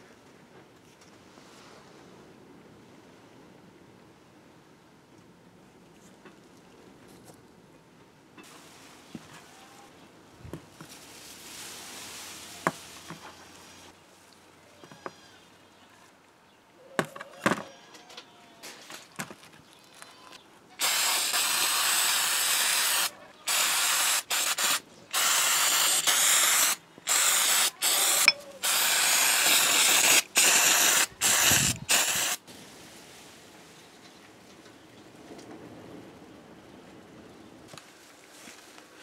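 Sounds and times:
aerosol spray hissing: 20.8s - 32.4s.

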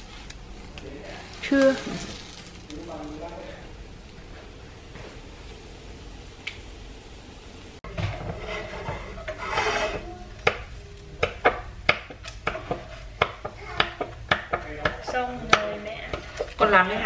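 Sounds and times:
spatula scraping and tapping pan: 7.9s - 17.0s.

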